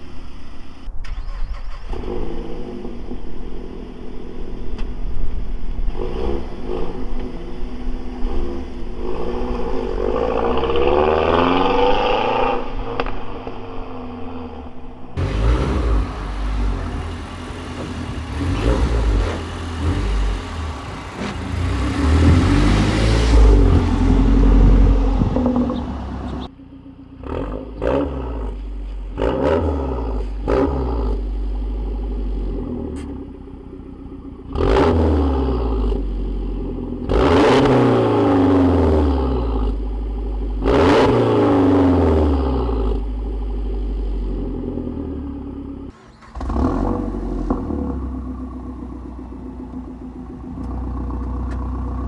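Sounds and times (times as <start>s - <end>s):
car engine revving: 1.1s - 52.0s
car engine accelerating past: 9.2s - 26.5s.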